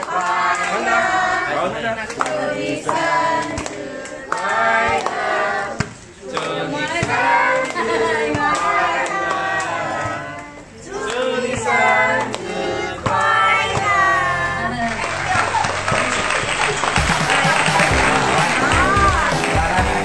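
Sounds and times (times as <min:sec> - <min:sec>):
group singing: 0:00.0 - 0:15.6, 0:16.9 - 0:20.0
hand clapping: 0:02.1 - 0:05.2, 0:14.9 - 0:20.0.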